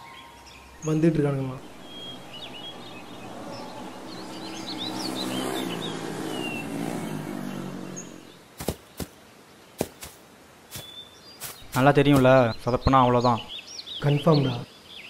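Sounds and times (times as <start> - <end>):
birds chirping: 0.0 - 15.0
motorcycle engine running: 1.6 - 9.1.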